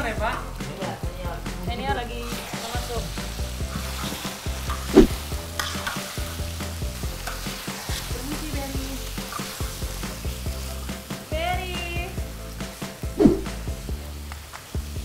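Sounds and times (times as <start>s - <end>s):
food sizzling in oil: 0.0s - 15.0s
metal spatulas scraping a wok: 2.3s - 10.2s.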